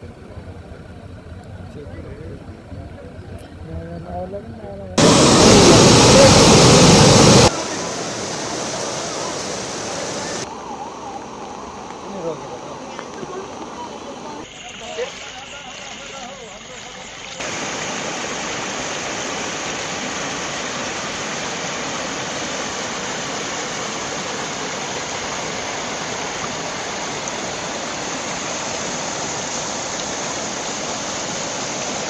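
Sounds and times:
flood torrent rushing: 0:05.0 - 0:16.6, 0:17.4 - 0:32.0.

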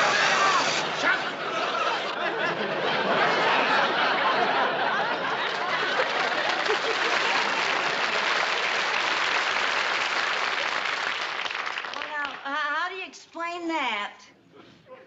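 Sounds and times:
audience laughing: 0:00.0 - 0:09.2
audience applauding: 0:03.5 - 0:12.6.

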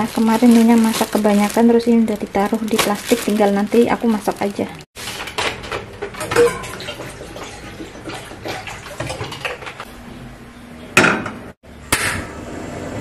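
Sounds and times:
metal pan clanking: 0:05.3 - 0:06.9
water splashing and pouring: 0:06.2 - 0:09.8.

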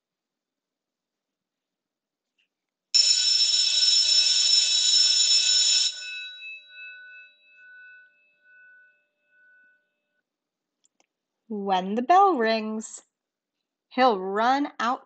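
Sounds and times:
school bell ringing: 0:03.0 - 0:08.9.

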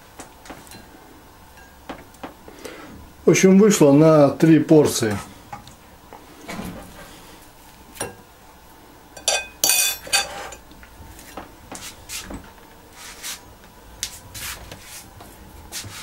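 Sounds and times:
cutlery clinking on plates: 0:09.2 - 0:10.6.

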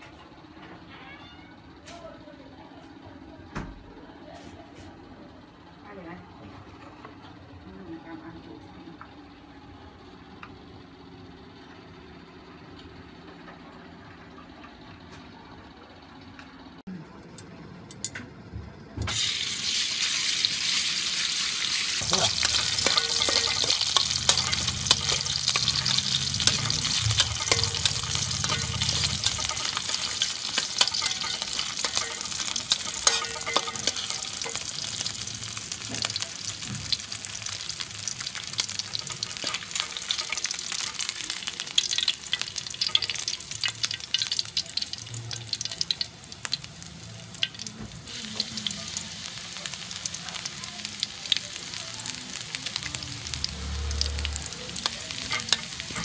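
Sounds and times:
garlic sizzling in hot oil: 0:19.1 - 0:56.0
metal spatula scraping a pan: 0:22.0 - 0:35.2
low hum: 0:22.0 - 0:35.9.

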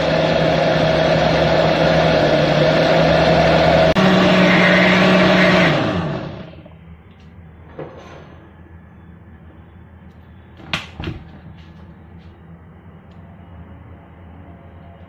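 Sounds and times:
blender motor running: 0:00.0 - 0:06.7.

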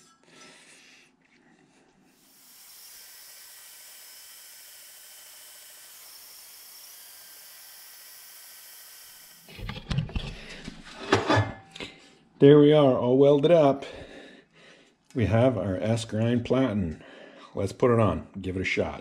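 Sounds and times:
metal-cutting bandsaw hissing: 0:02.2 - 0:09.5.

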